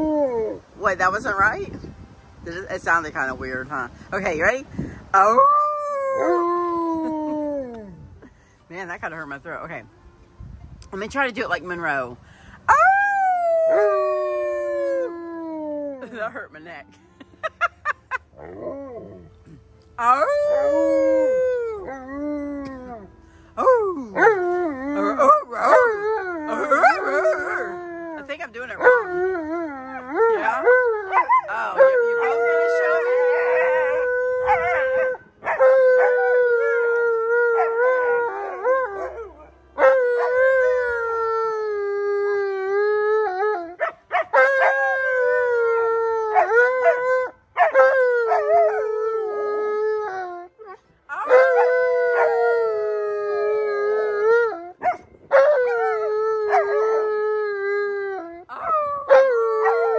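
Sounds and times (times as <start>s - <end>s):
dog howling: 28.8s - 36.8s, 37.5s - 40.9s, 51.1s - 57.5s, 58.3s - 59.9s.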